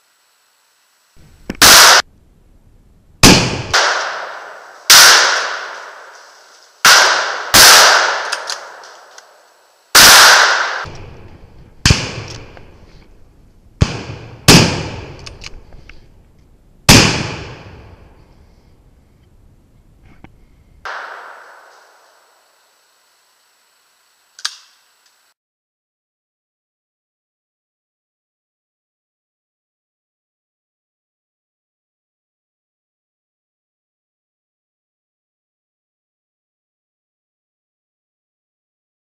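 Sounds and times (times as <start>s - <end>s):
rifle shots echoing: 1.6s - 2.0s, 3.2s - 12.9s, 13.8s - 15.5s, 16.9s - 18.1s, 20.9s - 22.4s.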